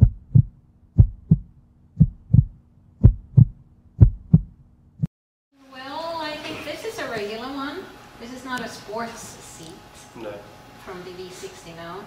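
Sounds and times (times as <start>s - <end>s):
heartbeat thumps: 0.0s - 5.1s.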